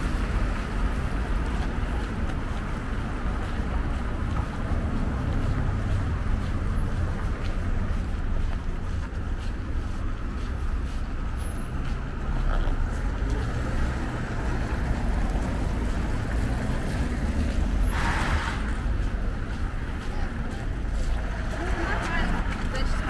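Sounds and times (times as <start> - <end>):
passing cars and vans: 0.0 - 23.0.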